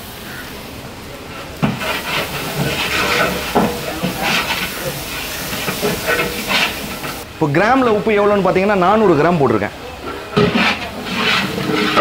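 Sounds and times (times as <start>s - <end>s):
paste sizzling in hot oil: 1.5s - 7.3s, 10.1s - 12.0s
metal ladle scraping pot: 1.6s - 7.3s, 10.0s - 12.0s.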